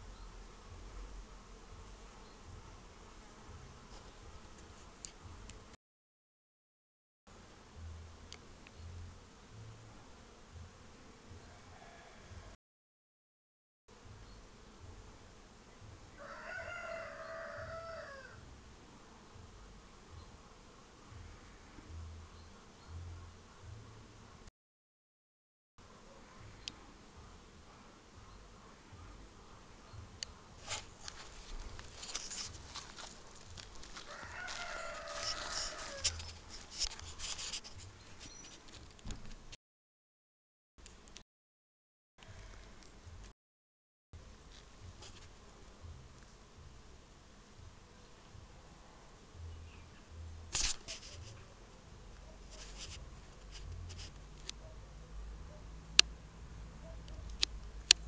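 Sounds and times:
rooster crowing: 11.4s - 12.6s, 16.1s - 18.4s, 33.9s - 36.3s
clicks and crackles: 30.2s - 39.6s, 50.5s - 51.4s, 52.6s - 54.6s, 57.0s - 58.0s
scratchy rustle: 30.6s - 39.4s, 44.5s - 45.4s, 50.5s - 51.5s, 52.3s - 54.2s.

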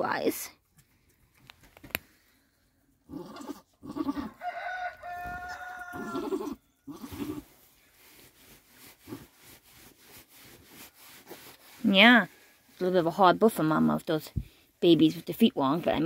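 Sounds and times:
goat calling: 3.1s - 4.4s, 5.1s - 7.5s
goat grunting: 3.1s - 4.4s, 5.9s - 7.5s.

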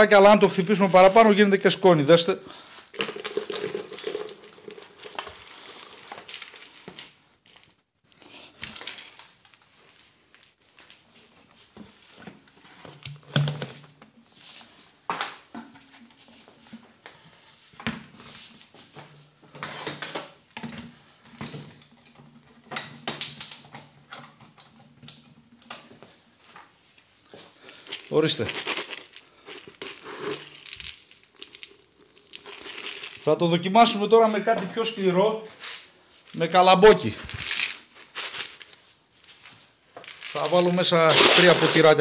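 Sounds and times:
dog kibble pouring into plastic bucket: 2.8s - 7.7s, 27.7s - 33.6s, 36.9s - 38.8s, 40.0s - 42.0s
plastic jar knocking and clattering: 2.9s - 6.1s, 12.8s - 14.1s.

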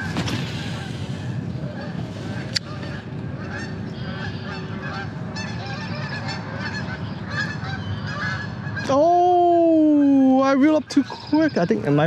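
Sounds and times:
wind rumble on microphone: 0.0s - 8.9s
geese honking: 0.0s - 12.0s.

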